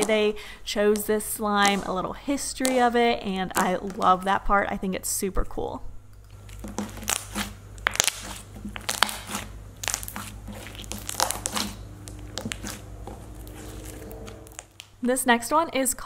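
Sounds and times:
slime crackling and popping: 0.8 - 4.3, 6.4 - 15.0.

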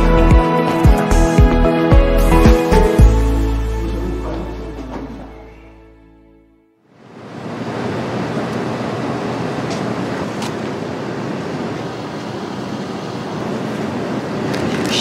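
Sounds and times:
music: 0.0 - 6.8
outdoor street ambience: 6.9 - 15.0.

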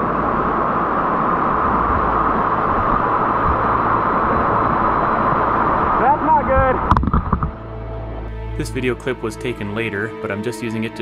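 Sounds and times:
whitewater rushing over rocks: 0.0 - 7.5.

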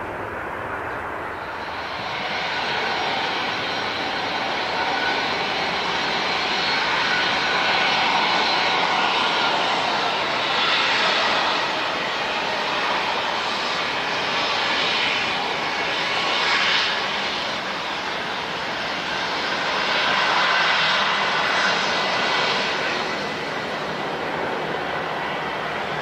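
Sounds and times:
jet airliner engines rushing: 0.0 - 26.0.

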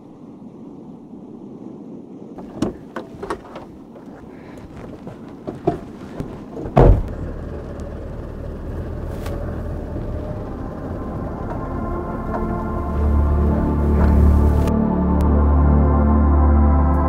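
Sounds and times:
clicks and knocks getting into truck: 2.4 - 10.6
heavy thump: 5.4 - 7.3
truck engine running: 5.6 - 15.2.

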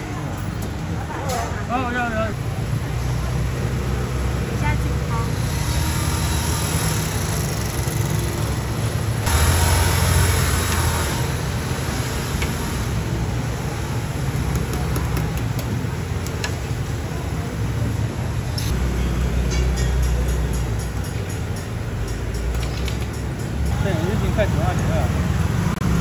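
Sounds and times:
gas burner roaring: 2.4 - 19.9.

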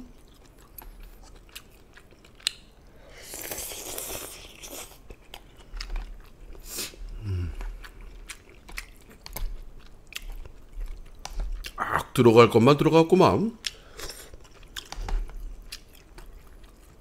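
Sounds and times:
chewing with wet clicks: 0.1 - 2.9, 3.5 - 11.8, 13.5 - 17.0
person slurping noodles: 3.1 - 5.0
person humming: 7.2 - 7.6.

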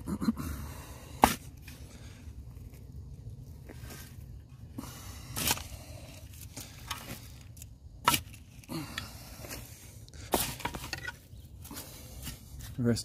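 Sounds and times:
shovel scraping into soil: 1.2 - 1.8, 5.0 - 8.7, 9.4 - 12.8.

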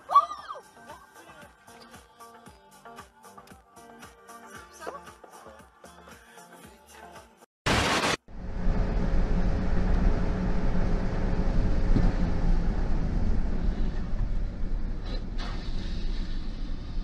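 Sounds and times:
car road and engine noise: 8.2 - 17.0.

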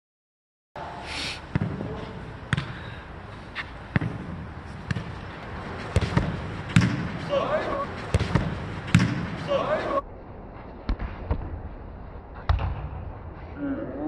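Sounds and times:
ball kicked and bouncing: 1.5 - 2.8, 3.6 - 7.2, 8.1 - 9.4.

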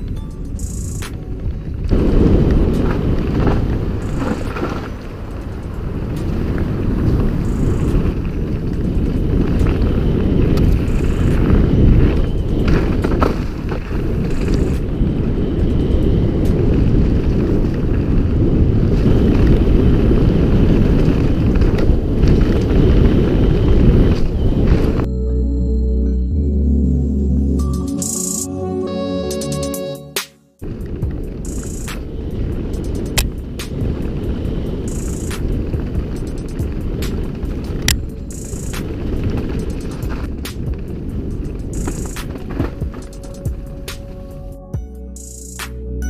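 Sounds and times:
wind buffeting microphone: 0.0 - 25.1, 30.6 - 44.7
bike tyres rumbling over dirt: 1.1 - 25.1, 30.6 - 44.5
bike knocks and rattles: 30.7 - 44.0.

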